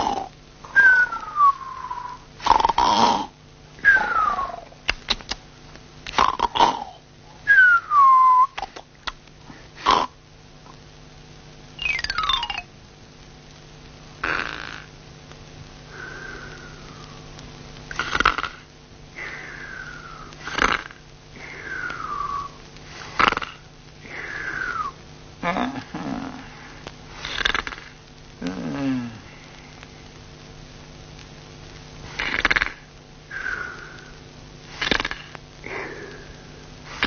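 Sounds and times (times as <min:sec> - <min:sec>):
cartoon snoring with whistle: 0:00.0 - 0:04.7, 0:17.9 - 0:18.6, 0:19.2 - 0:21.0, 0:21.6 - 0:23.6, 0:24.2 - 0:26.4, 0:27.2 - 0:29.2, 0:32.1 - 0:33.8, 0:34.8 - 0:36.3.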